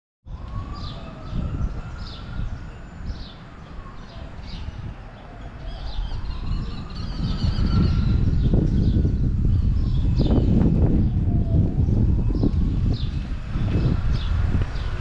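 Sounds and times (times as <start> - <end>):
low rumble: 6.3 - 15.0.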